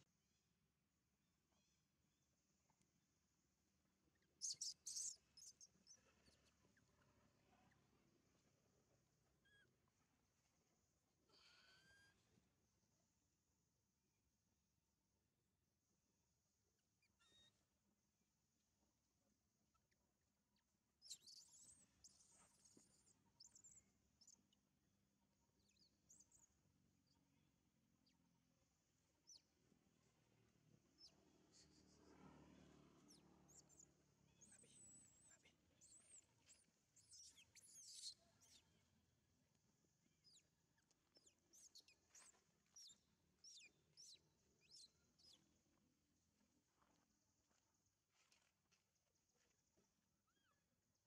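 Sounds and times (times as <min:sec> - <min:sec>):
faint animal chirps and squeaks: 0:04.1 - 0:07.8, 0:09.4 - 0:09.8, 0:11.4 - 0:12.3, 0:17.0 - 0:17.6, 0:21.0 - 0:24.6, 0:25.6 - 0:27.2, 0:29.2 - 0:29.5, 0:31.0 - 0:38.9, 0:40.2 - 0:45.5, 0:50.3 - 0:50.6.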